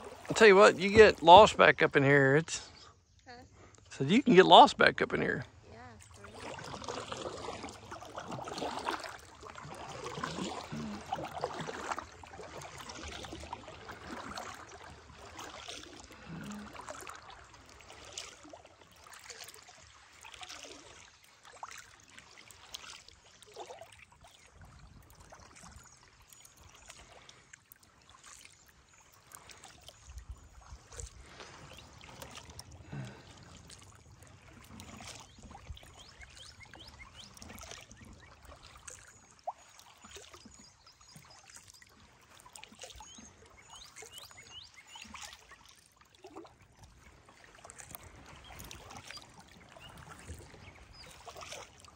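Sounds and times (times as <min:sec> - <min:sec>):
paddle strokes dripping in water: 0:00.0 - 0:01.8, 0:06.0 - 0:51.9
faint bird chirps: 0:42.8 - 0:45.6.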